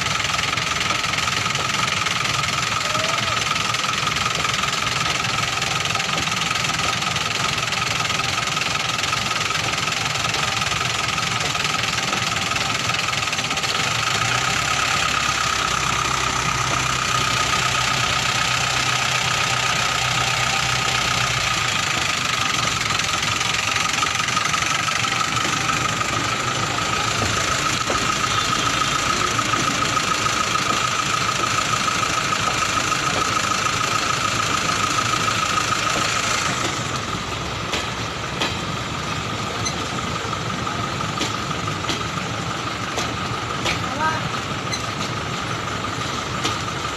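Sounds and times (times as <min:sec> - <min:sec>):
train wheels clattering on rails: 0:00.0 - 0:46.9
steady high tone: 0:02.4 - 0:37.6.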